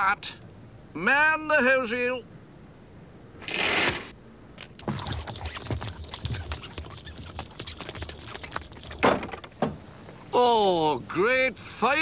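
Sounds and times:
hose reel clattering: 4.6 - 9.5.

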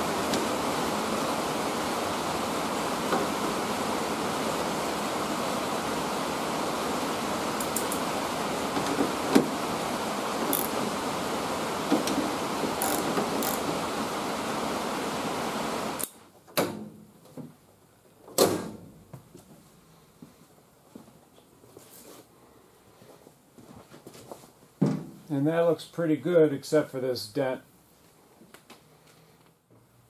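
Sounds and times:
steady rushing background noise: 0.0 - 16.1
wrench clicking and knocking: 10.5 - 10.7, 12.8 - 13.7.

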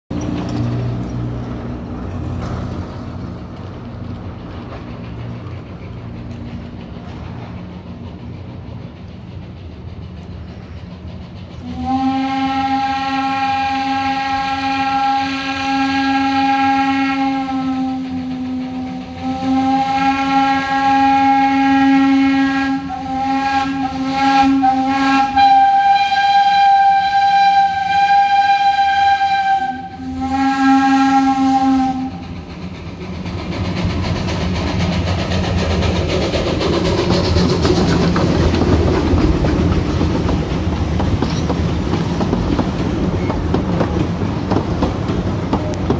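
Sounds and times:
train rumbling past on rails: 0.1 - 45.9
steam locomotive whistle blasts: 11.6 - 32.4.

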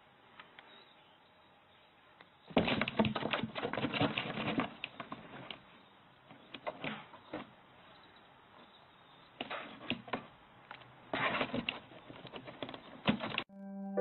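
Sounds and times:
cat scratching cardboard box: 2.6 - 5.5.

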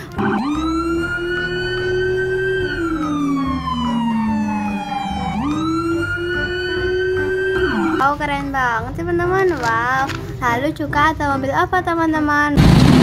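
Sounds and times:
police siren wailing: 0.0 - 8.2.

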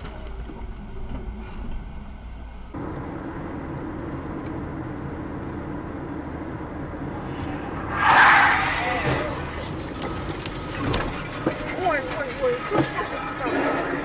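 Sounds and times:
car interior road noise: 0.0 - 14.0
highway drone with low hum: 0.0 - 14.0.

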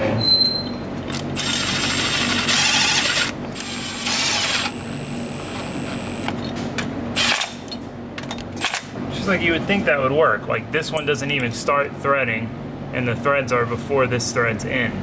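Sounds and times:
cordless power tool driving screws: 1.1 - 6.3.

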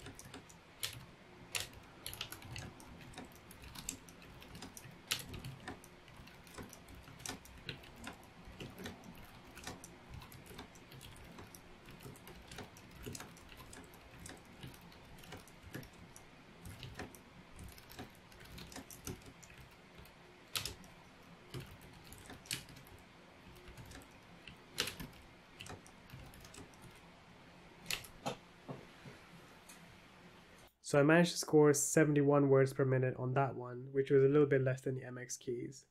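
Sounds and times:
fast typing on keyboard: 0.0 - 27.0.

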